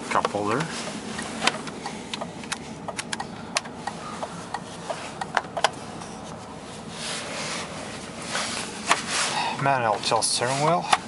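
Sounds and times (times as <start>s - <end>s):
steady low hum: 0.0s - 11.0s
clicks on plastic car controls: 0.1s - 5.8s.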